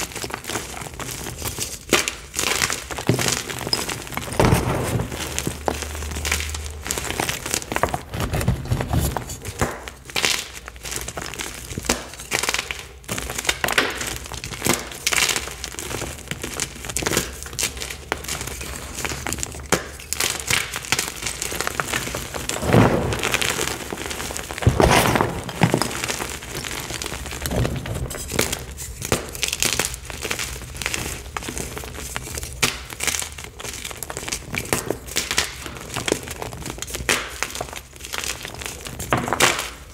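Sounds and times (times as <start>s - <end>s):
hands crushing chalk blocks: 0.0s - 39.9s.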